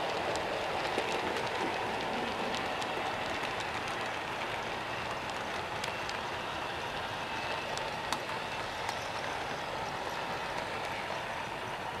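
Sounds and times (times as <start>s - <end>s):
model train running on track: 0.0s - 12.0s.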